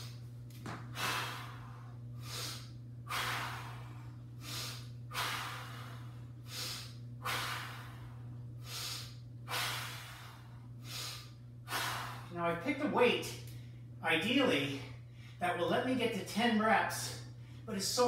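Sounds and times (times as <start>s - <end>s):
man breathing hard: 0.9s - 12.3s.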